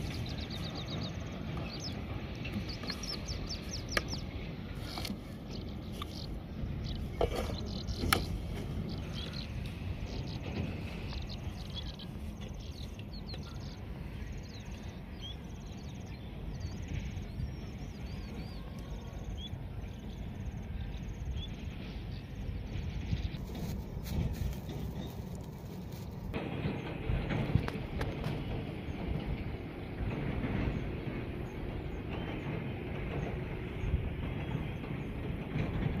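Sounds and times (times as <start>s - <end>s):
small birds chirping: 0.0s - 26.3s
low background rumble: 0.0s - 36.0s.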